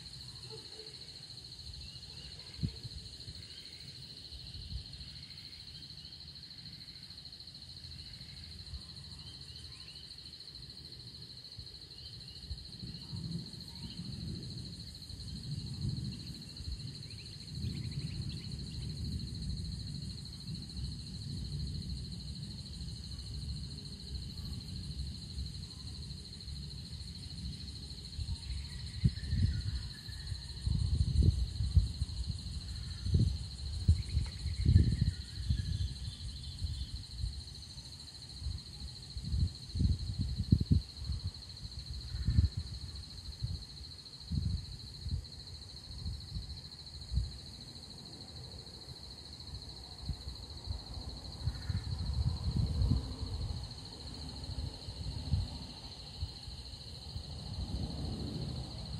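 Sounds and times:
insects droning: 0.0s - 58.9s
wind buffeting microphone: 26.8s - 37.6s, 38.4s - 47.4s, 50.0s - 58.9s.

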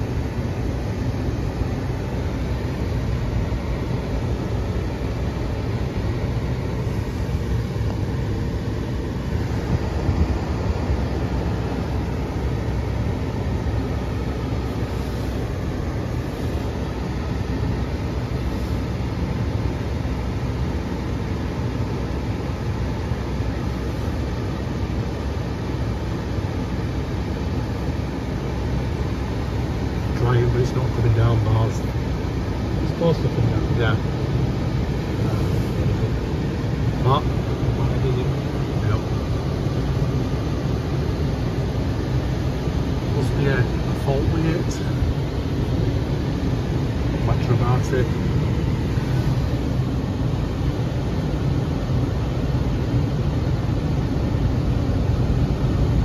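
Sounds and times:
car wash machine rushing: 0.0s - 19.8s.

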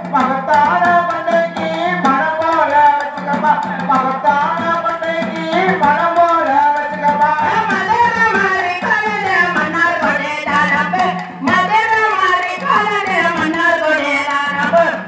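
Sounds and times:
folk song over loudspeaker: 0.0s - 15.0s
hand drum beating: 0.0s - 15.0s.

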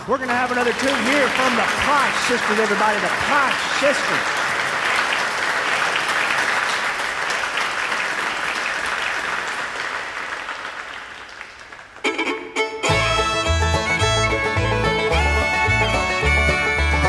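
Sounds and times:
audience applauding: 0.0s - 17.0s
bluegrass band playing: 12.0s - 17.0s.

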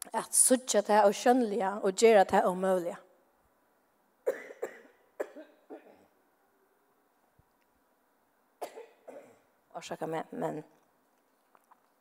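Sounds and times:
woman coughing into microphone: 4.2s - 6.2s, 8.6s - 9.5s.

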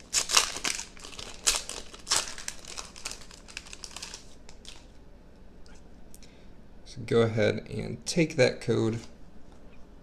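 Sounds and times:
foil wrapper crinkling: 0.0s - 4.9s.

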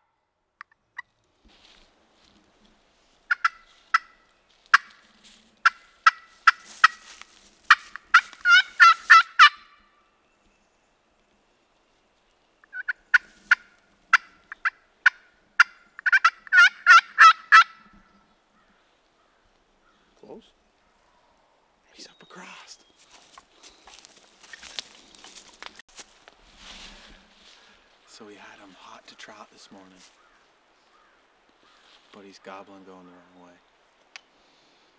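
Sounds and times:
turkey yelping: 3.3s - 5.0s, 5.6s - 9.8s, 12.6s - 18.0s.

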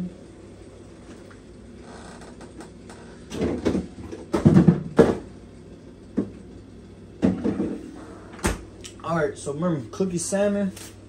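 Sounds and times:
kitchen knocks and rattles: 3.3s - 5.3s.

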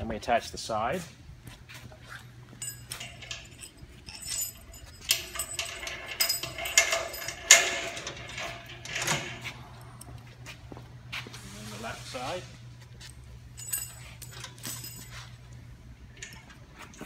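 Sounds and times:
metal cable and clips clinking: 2.0s - 10.2s, 12.9s - 17.0s.

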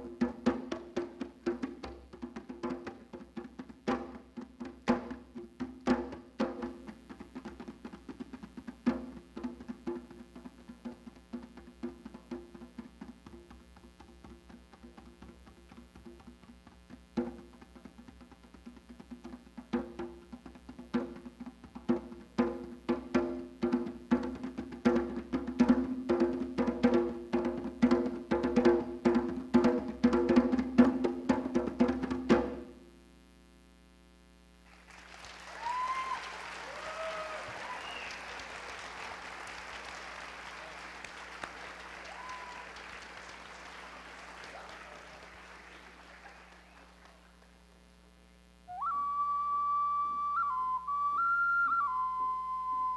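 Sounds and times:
djembe played with hands: 0.0s - 32.7s
audience applauding: 34.7s - 47.6s.

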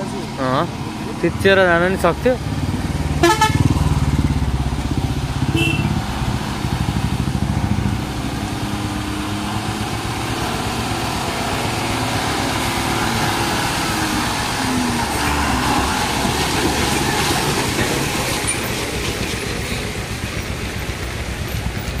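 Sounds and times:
diesel truck engine passing: 0.0s - 22.0s
motorcycle engine pulsing: 2.4s - 14.9s.

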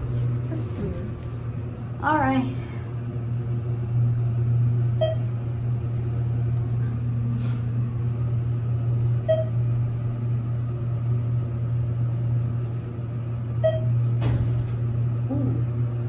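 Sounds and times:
elevator low hum: 0.0s - 16.0s
short elevator beep: 5.0s - 5.3s, 9.2s - 9.6s, 13.6s - 14.0s.

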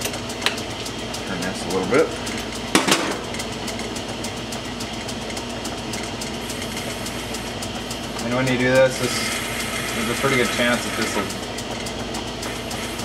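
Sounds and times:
metal lathe humming and ticking: 0.0s - 13.0s.

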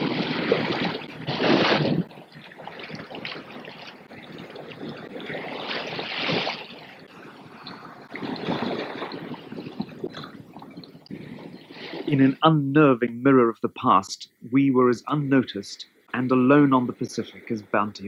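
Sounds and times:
water rushing along ship hull: 0.0s - 12.7s
wind: 0.0s - 18.0s.

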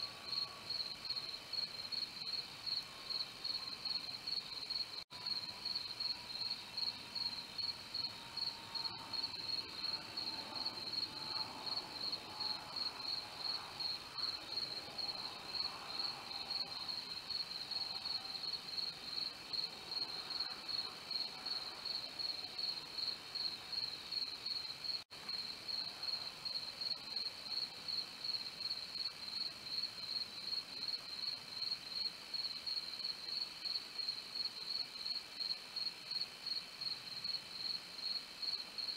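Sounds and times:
crickets chirping: 0.1s - 38.9s.

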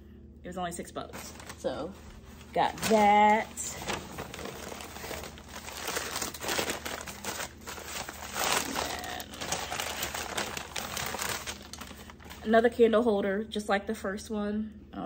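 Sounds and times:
shopping bag crinkling: 1.1s - 12.8s.

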